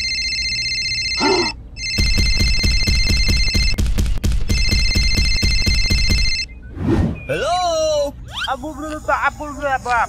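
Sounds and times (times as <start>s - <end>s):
phone ringtone: 0.0s - 3.8s, 4.5s - 6.5s.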